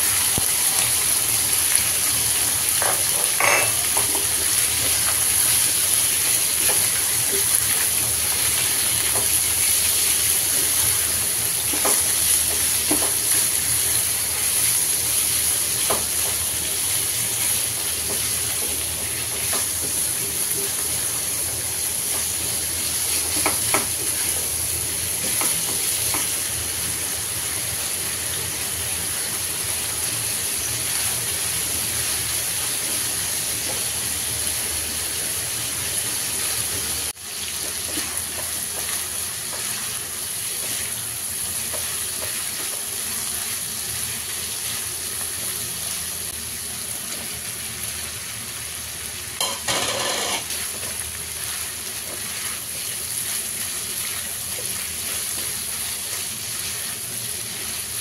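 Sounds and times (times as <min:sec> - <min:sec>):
meat sizzling in hot oil: 0:00.0 - 0:58.0
spatula scraping a pan: 0:49.4 - 0:50.6.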